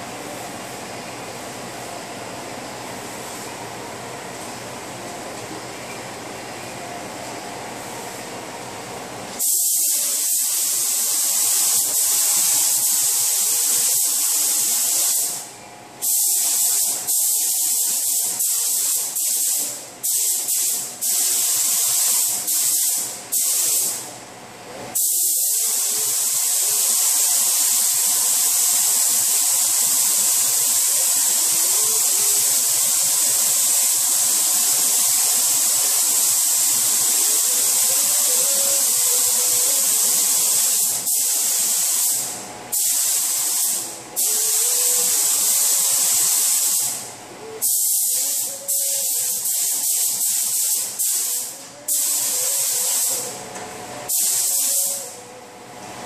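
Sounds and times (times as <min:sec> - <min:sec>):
paint spray gun hissing: 0:09.4 - 0:24.0, 0:25.0 - 0:47.0, 0:47.6 - 0:53.3, 0:54.1 - 0:55.2.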